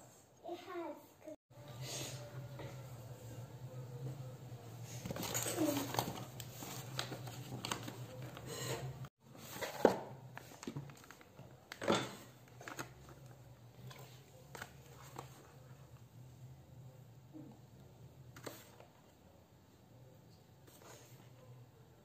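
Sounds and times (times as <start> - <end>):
kitchen items knocking and clinking: 5.0 - 13.0.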